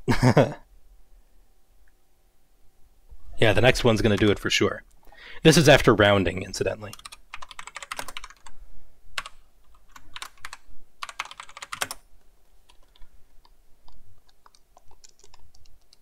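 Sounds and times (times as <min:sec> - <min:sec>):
typing on computer keyboard: 0:06.9 - 0:08.5, 0:09.2 - 0:12.0, 0:12.7 - 0:16.0.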